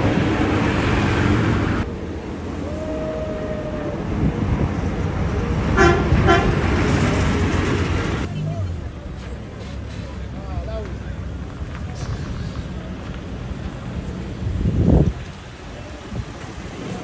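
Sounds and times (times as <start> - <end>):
street traffic rumble: 0.0 - 17.0
vehicle horn toots: 5.8 - 6.8.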